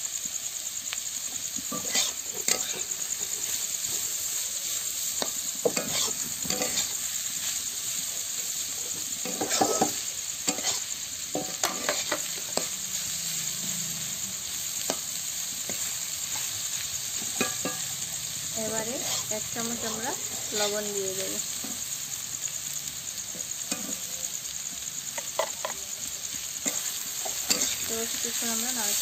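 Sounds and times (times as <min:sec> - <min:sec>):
vegetables sizzling in oil: 0:00.0 - 0:29.0
metal spatula scraping a wok: 0:01.6 - 0:21.8, 0:26.6 - 0:29.0.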